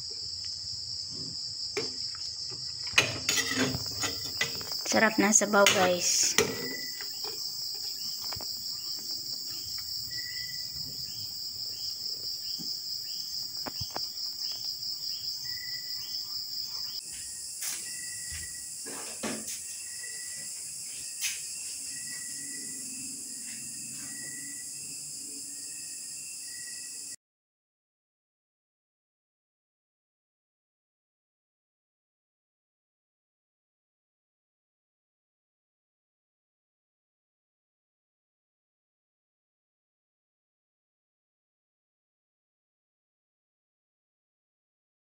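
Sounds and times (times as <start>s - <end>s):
crickets chirping: 0.0s - 27.2s
insect hiss with short chirps: 4.7s - 18.8s, 19.5s - 27.2s.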